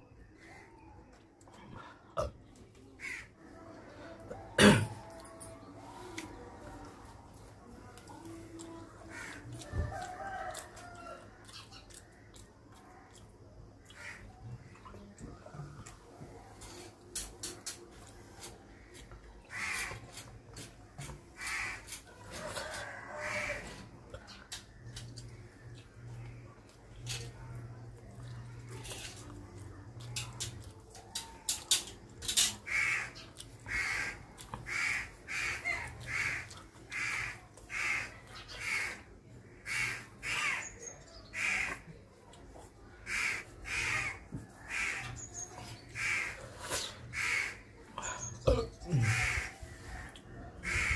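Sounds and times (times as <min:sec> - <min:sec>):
crow cawing: 0:03.0 - 0:03.3, 0:19.5 - 0:20.0, 0:21.4 - 0:21.9, 0:32.7 - 0:39.0, 0:39.6 - 0:40.6, 0:41.4 - 0:41.8, 0:43.1 - 0:45.1, 0:46.0 - 0:46.4, 0:47.1 - 0:47.6, 0:50.6 - 0:50.9.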